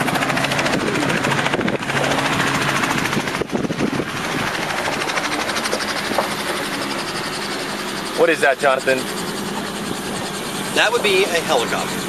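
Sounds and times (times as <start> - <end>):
helicopter rotor chopping: 0.0 - 12.0
vehicle engine hum: 0.0 - 12.0.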